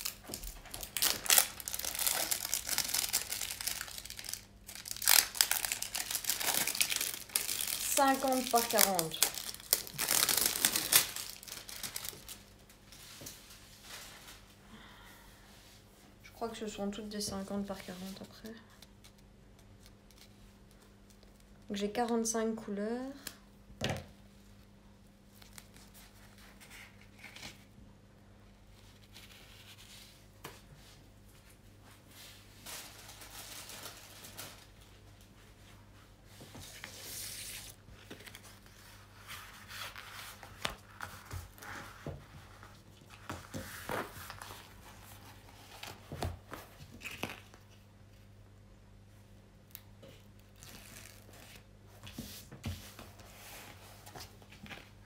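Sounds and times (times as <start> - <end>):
plastic packaging rustling and crinkling: 0.0 - 14.6, 31.5 - 35.7, 36.3 - 48.3
low electrical hum: 0.0 - 55.0.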